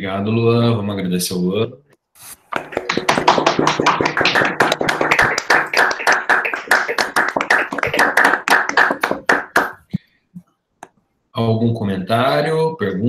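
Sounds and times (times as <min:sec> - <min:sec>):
hands clapping in applause: 0:02.5 - 0:09.9.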